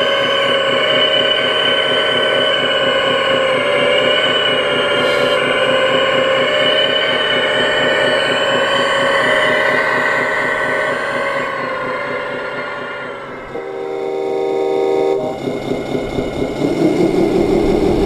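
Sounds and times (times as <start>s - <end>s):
hydraulic whine of toy excavator: 0.0s - 13.8s.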